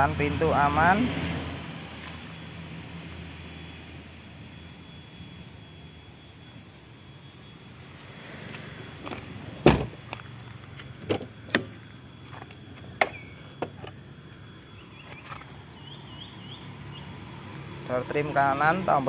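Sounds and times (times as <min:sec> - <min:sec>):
car door shutting: 0:09.1 - 0:10.2, 0:11.0 - 0:11.8.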